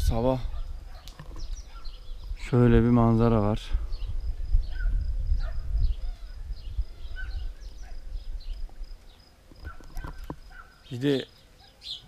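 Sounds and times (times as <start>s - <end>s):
wind buffeting microphone: 0.0s - 9.0s
bird chirps: 0.5s - 2.5s, 3.9s - 12.0s.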